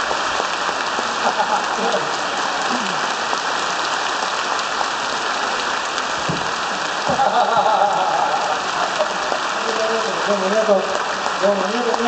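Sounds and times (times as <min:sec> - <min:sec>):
large audience applauding: 0:00.0 - 0:06.0, 0:06.6 - 0:12.0
person's voice: 0:09.5 - 0:12.0.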